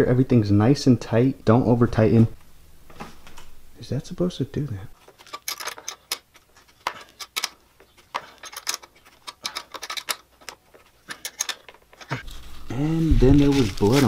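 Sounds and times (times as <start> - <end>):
hand tool clicking on bolts: 5.0 - 12.2.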